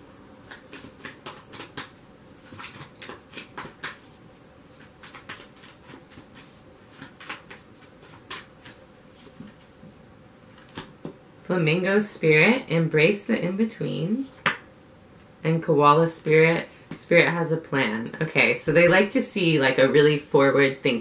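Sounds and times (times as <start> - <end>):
cards being shuffled: 0.4 - 9.8.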